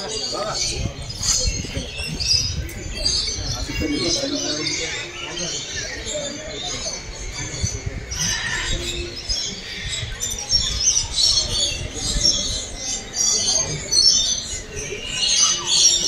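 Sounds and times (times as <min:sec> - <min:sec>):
small birds chirping chorus: 0:00.0 - 0:16.0.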